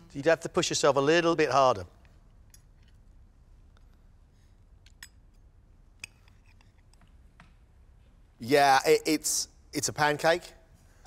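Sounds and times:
metal fork clicking: 0:02.3 - 0:03.0, 0:04.8 - 0:07.0.

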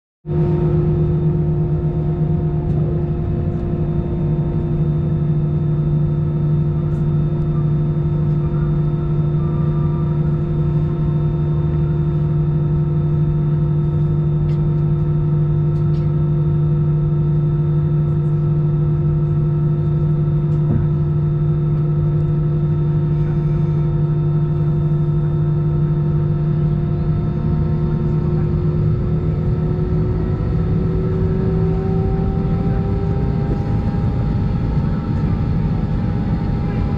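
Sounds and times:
aircraft cabin air-conditioning hum: 0:00.3 - 0:36.9.

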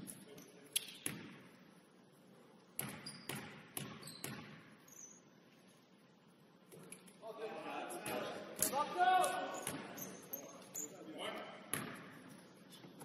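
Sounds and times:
basketball bouncing on hardwood floor: 0:02.8 - 0:04.7, 0:11.7 - 0:12.2.

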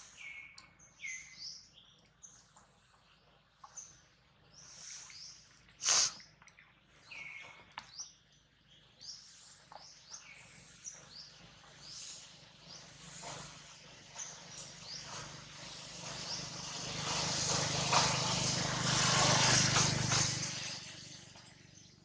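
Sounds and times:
small birds chirping: 0:00.0 - 0:18.6
vehicle passing by: 0:11.8 - 0:22.0.

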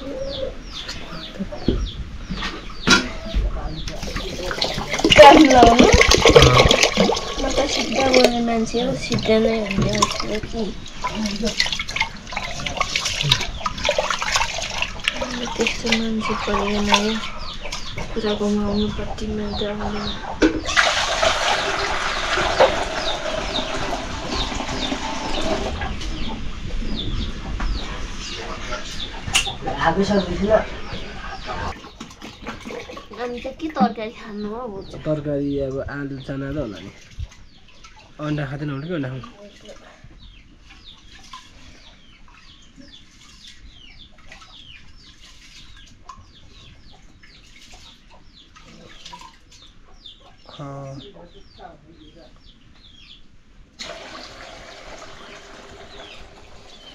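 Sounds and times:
chicks peeping: 0:00.0 - 0:53.4, 0:55.7 - 0:56.9
water pouring into metal bucket: 0:04.0 - 0:08.4, 0:20.7 - 0:25.7, 0:53.8 - 0:56.9.

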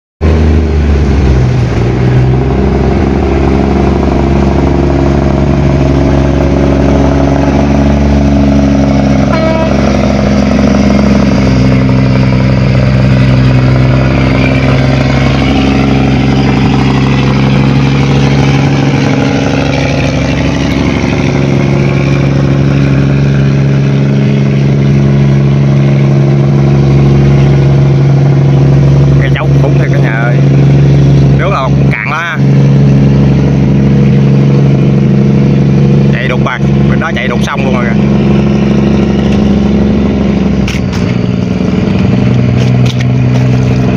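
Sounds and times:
barge diesel engine droning: 0:00.2 - 0:43.9
water rushing along hull: 0:00.2 - 0:43.9.

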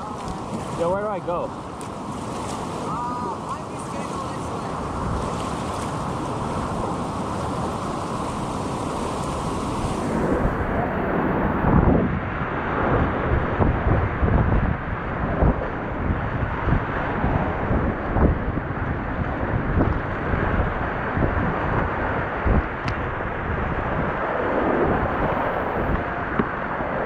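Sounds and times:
water splashing: 0:00.0 - 0:10.9
whitewater rushing: 0:00.0 - 0:11.7
wind buffeting microphone: 0:00.0 - 0:27.0.

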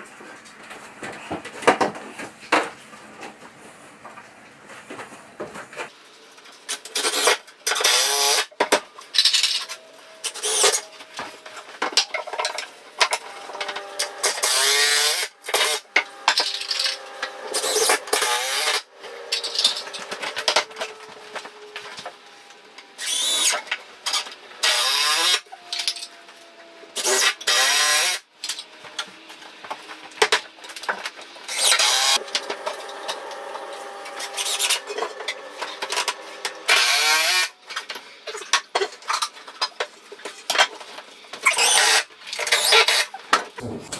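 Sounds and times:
cordless drill whining: 0:13.2 - 0:21.7, 0:31.5 - 0:37.5.

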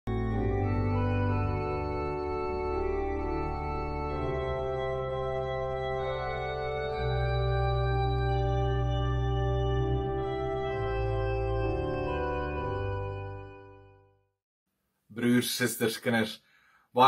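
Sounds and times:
organ music: 0:00.1 - 0:14.4.

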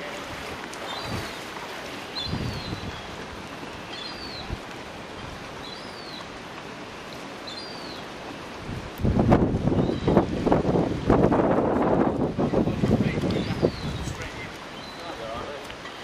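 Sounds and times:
rippling water hiss: 0:00.0 - 0:16.0
bird calling: 0:00.8 - 0:01.5, 0:02.1 - 0:04.6, 0:05.6 - 0:06.4, 0:07.4 - 0:08.1, 0:13.3 - 0:16.0
wind buffeting microphone: 0:02.2 - 0:05.5, 0:08.5 - 0:14.7.

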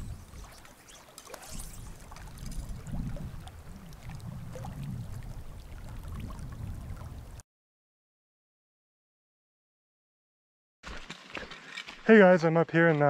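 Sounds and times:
wind rumble on microphone: 0:00.0 - 0:00.5, 0:01.7 - 0:07.4
water lapping against rocks: 0:00.1 - 0:07.4.

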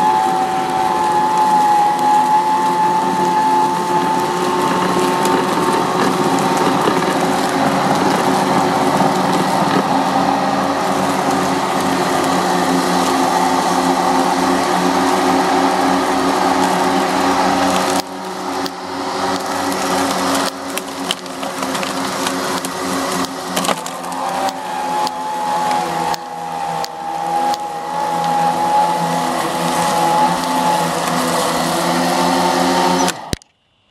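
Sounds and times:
electric mower humming: 0:00.0 - 0:33.8
mower high whine: 0:00.0 - 0:33.9
mower clunks and clicks: 0:17.7 - 0:28.8.

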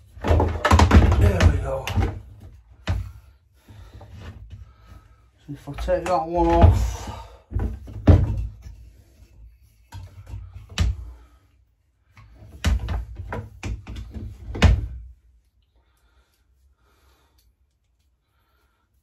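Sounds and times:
knocks and clunks from saw handling: 0:00.0 - 0:03.2, 0:05.6 - 0:09.3, 0:12.2 - 0:15.1.

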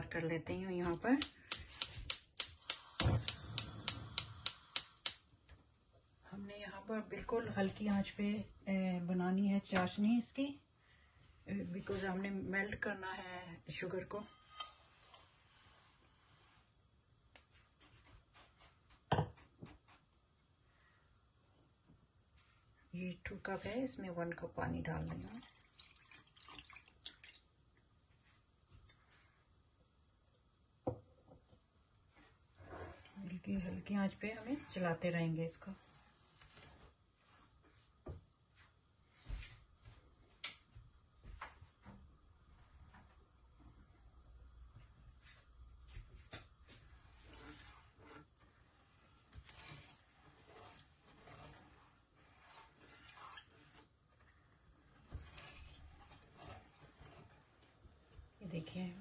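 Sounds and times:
spatula scraping a pan: 0:13.8 - 0:16.8, 0:32.1 - 0:37.5, 0:46.8 - 0:58.4
sugar pouring into a pan: 0:25.3 - 0:27.5, 0:47.2 - 0:57.7.

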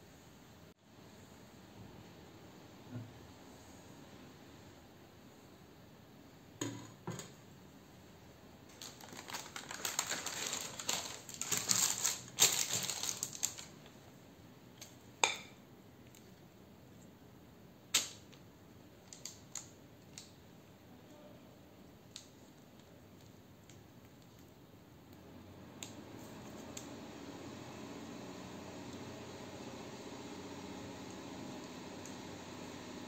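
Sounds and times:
baking paper crinkling: 0:08.7 - 0:13.9.

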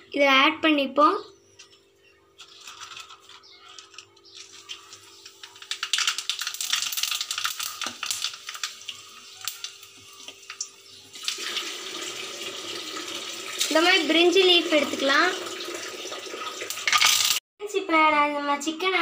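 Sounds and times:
spices sizzling in hot oil: 0:04.3 - 0:15.4, 0:16.0 - 0:17.4.

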